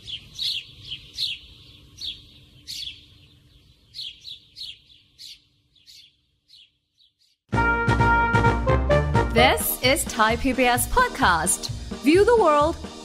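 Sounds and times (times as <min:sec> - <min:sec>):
bird chirps: 0:00.0 - 0:07.4.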